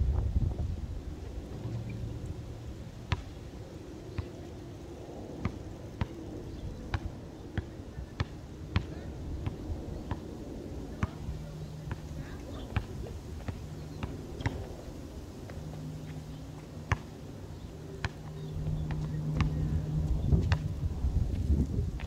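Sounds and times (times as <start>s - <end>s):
basketball bouncing on concrete: 3.1s - 3.3s, 7.6s - 10.2s, 11.0s - 11.2s, 16.9s - 17.1s, 18.0s - 19.6s.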